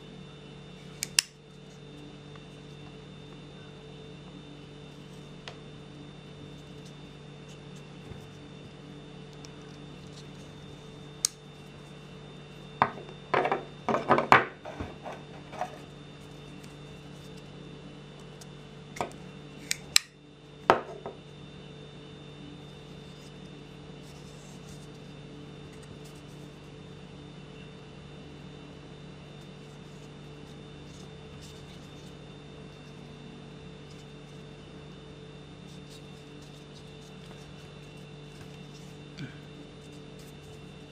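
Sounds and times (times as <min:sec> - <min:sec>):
folding knife clicking and snapping: 0:01.0 - 0:01.4, 0:19.6 - 0:20.1.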